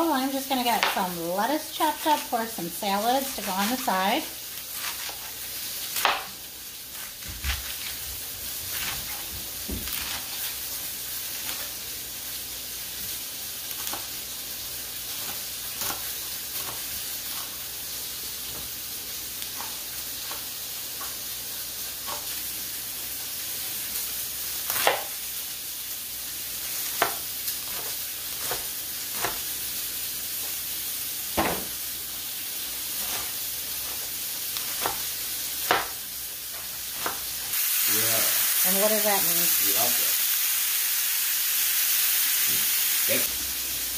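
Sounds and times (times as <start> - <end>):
steaks sizzling in a pan: 0.0 - 43.9
knife chopping on cutting board: 6.0 - 6.4, 15.1 - 17.5, 22.0 - 22.4, 24.7 - 25.2, 26.8 - 29.5, 31.4 - 31.8, 33.0 - 37.4.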